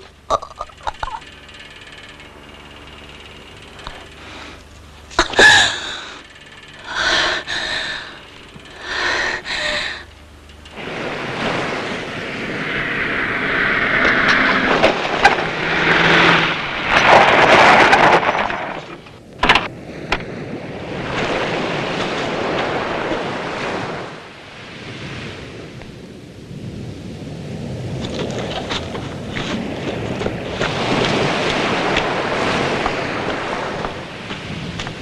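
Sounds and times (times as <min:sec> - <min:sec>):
rushing noise: 0:05.4 - 0:19.0
breathy gasps: 0:06.8 - 0:08.2, 0:08.8 - 0:10.1.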